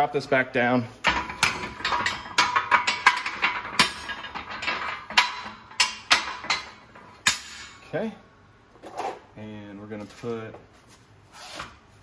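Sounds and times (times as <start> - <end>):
sharp metal clanks: 1.0 - 7.8.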